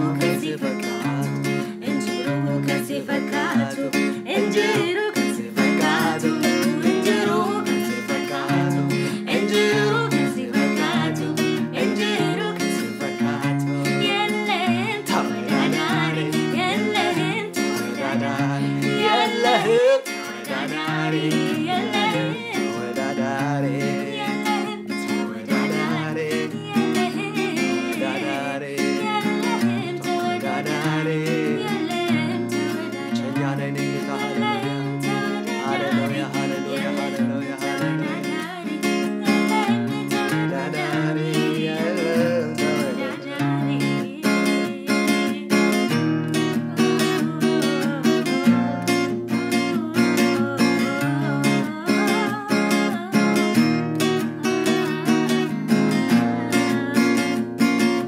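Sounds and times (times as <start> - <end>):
voices singing worship song: 0.0 - 45.5
acoustic guitar strumming: 0.0 - 58.0.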